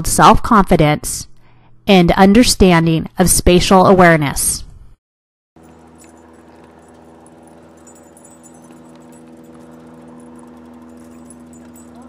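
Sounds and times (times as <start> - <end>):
dog tags jingling: 5.6 - 12.0
steady hum with pitched tones: 5.6 - 12.0.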